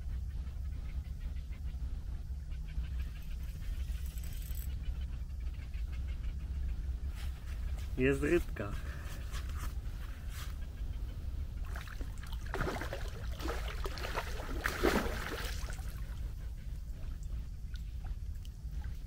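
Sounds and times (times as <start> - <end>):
steady low rumble: 0.0 - 19.0
water splashing: 11.7 - 16.1.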